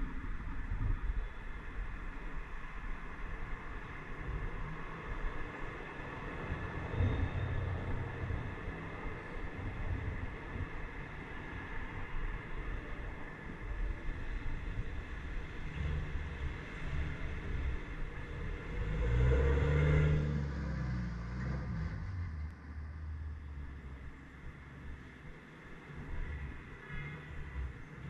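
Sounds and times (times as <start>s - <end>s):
car engines rumbling in traffic: 0.0s - 28.0s.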